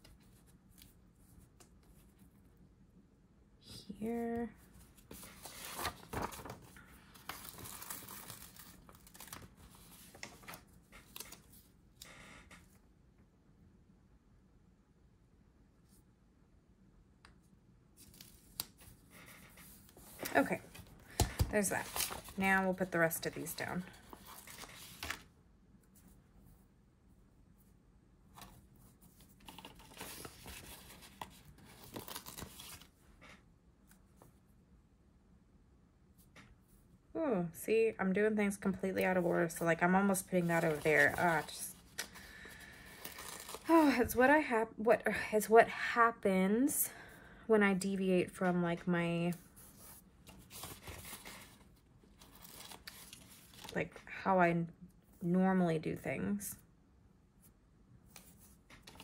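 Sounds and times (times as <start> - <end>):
paper sticker sheet rustling: 4.3 - 11.6, 18.0 - 25.2, 28.3 - 32.9, 40.3 - 42.2, 49.4 - 53.8
small paper crinkles and ticks: 5.2 - 11.6.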